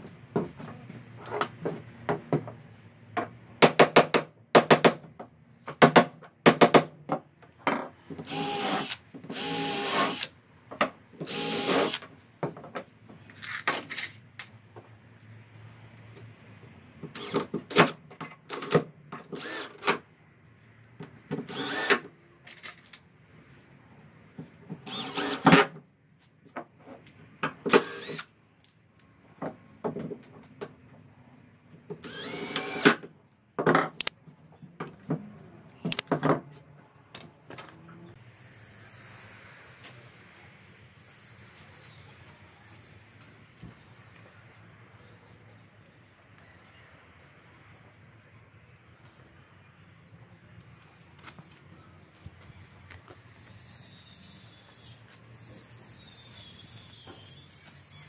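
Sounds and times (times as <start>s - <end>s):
cordless drill boring into wood: 8.3s - 10.3s, 11.3s - 12.0s, 17.2s - 17.4s, 19.4s - 19.8s, 21.5s - 22.0s, 24.9s - 25.7s, 27.7s - 28.3s, 32.0s - 33.0s, 53.4s - 58.0s.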